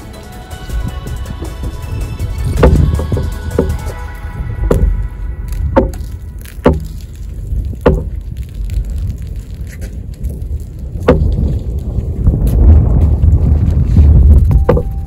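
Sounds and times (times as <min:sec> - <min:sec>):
wind buffeting microphone: 0:00.7 - 0:15.0
sharp knocks: 0:02.6 - 0:03.9, 0:04.7 - 0:05.0, 0:05.7 - 0:06.9, 0:07.8 - 0:08.2.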